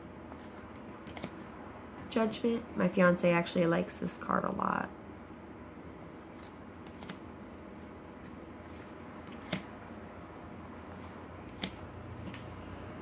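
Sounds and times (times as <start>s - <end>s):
card clicks: 1.0s - 1.4s, 9.3s - 9.7s, 11.5s - 12.4s.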